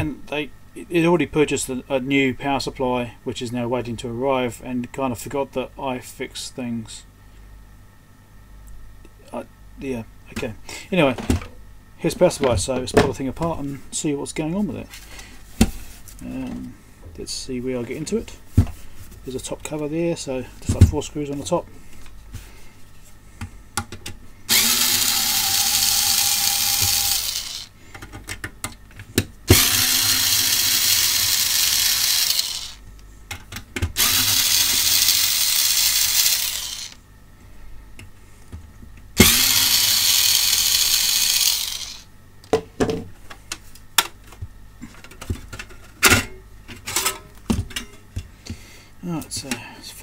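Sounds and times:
electric screwdriver running: 0:24.5 - 0:27.7, 0:29.5 - 0:32.8, 0:34.0 - 0:37.0, 0:39.2 - 0:42.1.

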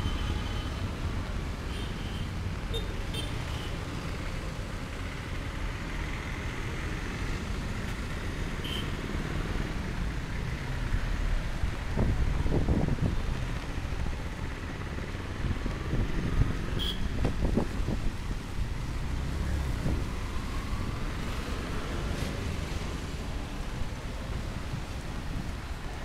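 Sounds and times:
street traffic rumbling: 0:00.0 - 0:26.0
wind buffeting microphone: 0:15.4 - 0:18.8.

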